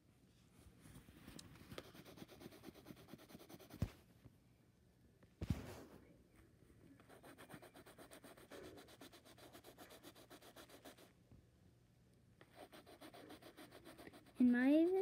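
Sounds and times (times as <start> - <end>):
colored pencil scratching on paper: 1.7 - 4.0, 7.0 - 11.1, 12.4 - 15.0.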